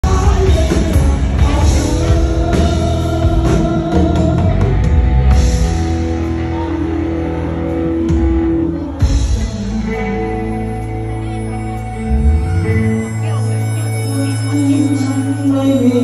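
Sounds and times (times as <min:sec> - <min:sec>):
drum kit: 0:00.0 - 0:06.7
electric bass: 0:00.0 - 0:16.0
electric guitar: 0:00.0 - 0:16.0.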